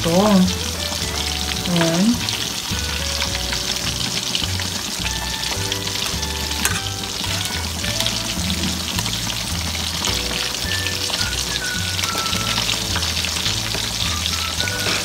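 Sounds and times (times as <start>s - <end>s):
ribs sizzling in hot oil: 0.0s - 15.0s.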